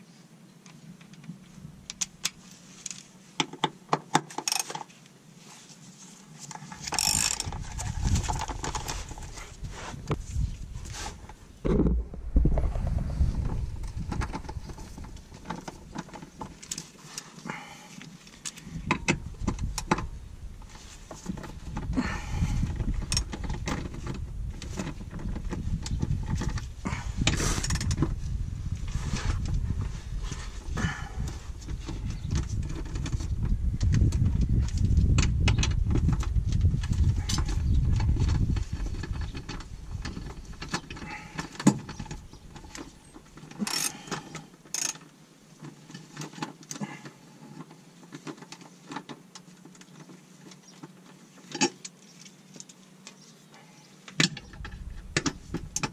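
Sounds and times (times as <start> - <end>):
low rumble: 10.5 - 15.9.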